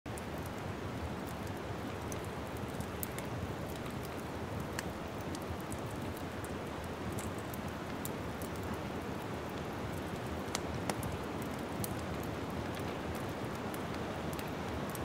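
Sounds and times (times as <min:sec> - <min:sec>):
wood fire crackling: 0:00.1 - 0:15.0
sharp pops and snaps: 0:09.6 - 0:15.0.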